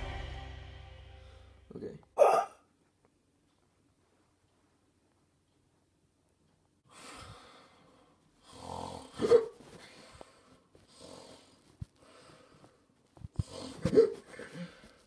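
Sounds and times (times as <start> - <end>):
loud hiccup: 2.2 - 2.7, 9.2 - 9.6
person imitating snoring: 8.5 - 9.3.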